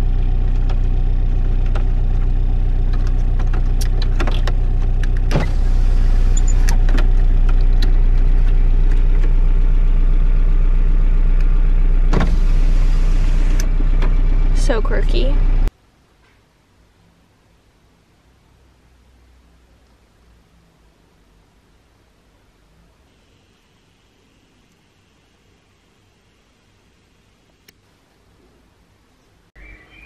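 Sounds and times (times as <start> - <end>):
car engine idling: 0.0 - 15.7
electric window motor running: 1.7 - 9.5, 12.0 - 14.6.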